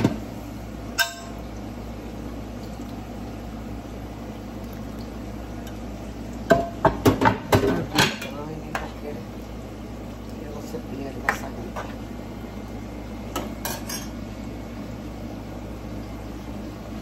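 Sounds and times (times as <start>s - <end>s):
utensils knocking against a pot: 1.0s - 1.4s.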